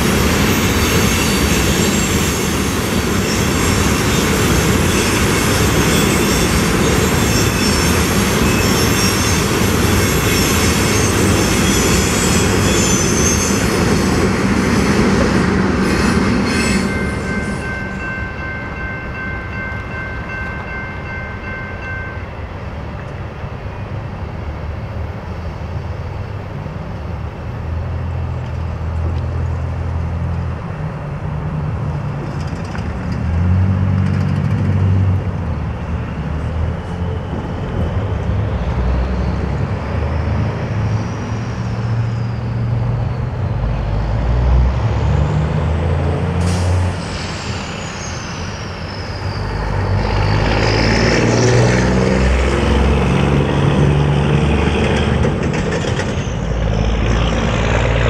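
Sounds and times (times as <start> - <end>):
passing vehicle whine: 0.0 - 58.0
train cars rumbling: 0.0 - 58.0
high wheel squeal: 0.1 - 14.2, 15.8 - 18.3, 39.2 - 43.2, 46.4 - 52.2, 54.9 - 58.0.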